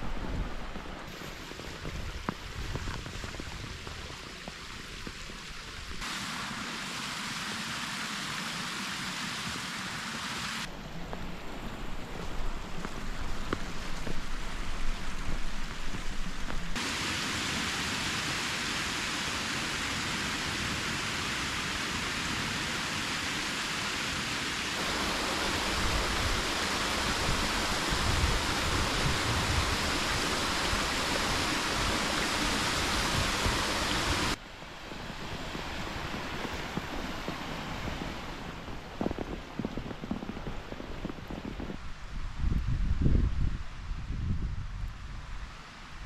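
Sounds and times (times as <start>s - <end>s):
wind on microphone: 0.0s - 6.0s, 24.8s - 46.0s
waterfall rushing into pool: 0.0s - 40.5s.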